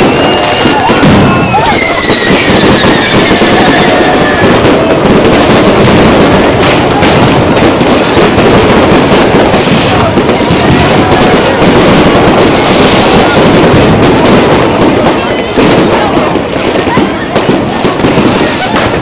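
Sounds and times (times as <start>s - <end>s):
fireworks bangs and crackling: 0.0s - 19.0s.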